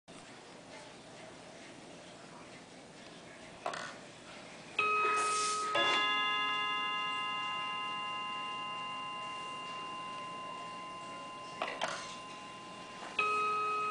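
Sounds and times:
clock chime ringing: 4.8 - 13.9.

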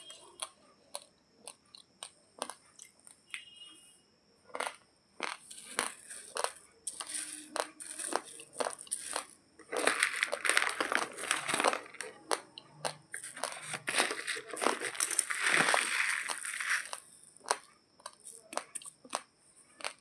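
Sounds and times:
dry rice grains crunching: 4.5 - 20.0.

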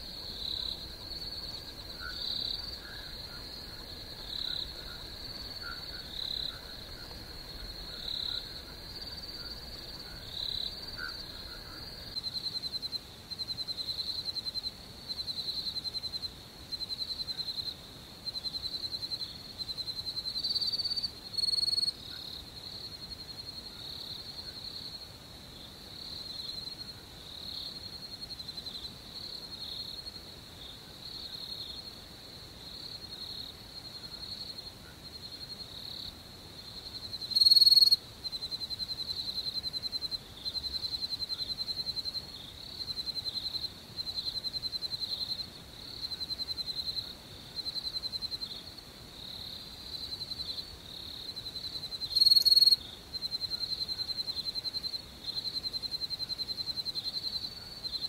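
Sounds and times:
crickets chirping: 0.0 - 58.0.

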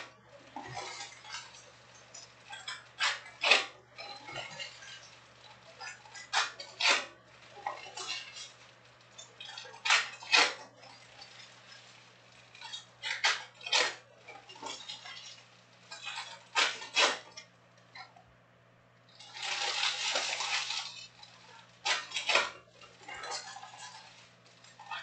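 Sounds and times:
foil wrappers ripped open: 19.2 - 21.0.

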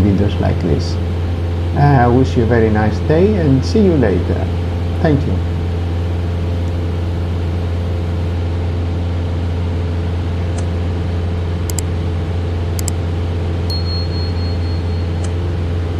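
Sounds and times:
light aircraft engine drone: 0.0 - 15.9
short clicks: 11.7 - 11.9, 12.8 - 13.0
thin high tone: 13.7 - 15.3.

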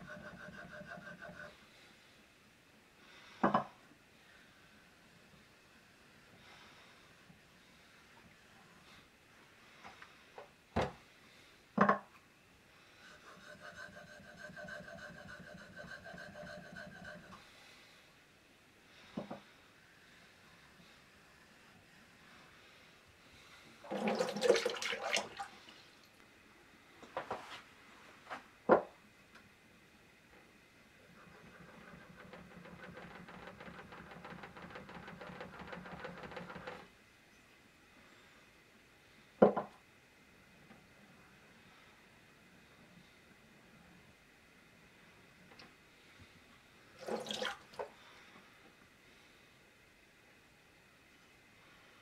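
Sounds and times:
plane blade scraping on whetstone: 0.0 - 1.6, 13.0 - 17.4.

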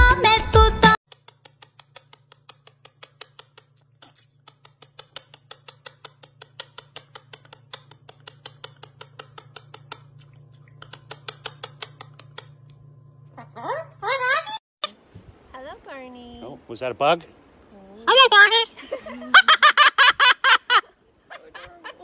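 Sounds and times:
parakeet clicking rapidly: 1.1 - 3.8, 4.4 - 12.5
steady low hum: 1.1 - 22.0.

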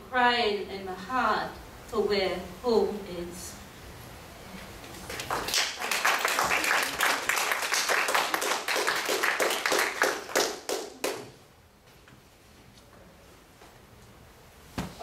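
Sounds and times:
audience clapping: 5.0 - 11.4.

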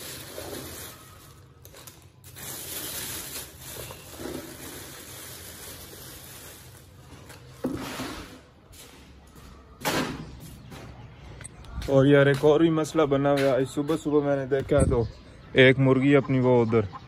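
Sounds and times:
plastic bags rustling: 0.0 - 8.9.

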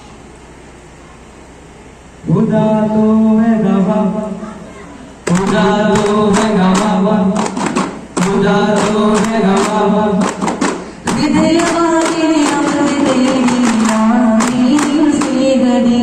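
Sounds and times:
voices singing devotional song: 5.3 - 10.5, 11.1 - 16.0
frame drums in quick rhythm: 5.3 - 16.0.

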